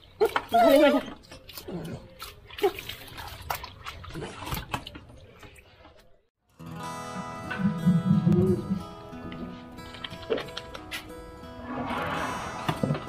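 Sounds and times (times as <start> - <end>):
water splashing on concrete: 0.2 - 5.0
background music: 6.6 - 13.0.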